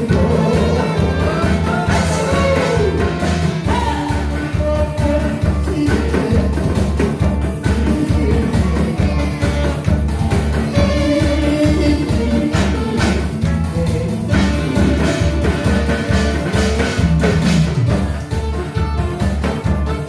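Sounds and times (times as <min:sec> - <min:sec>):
person singing into microphone: 0:00.0 - 0:17.2
live band music: 0:00.0 - 0:20.0
steady bass beat: 0:00.0 - 0:20.0.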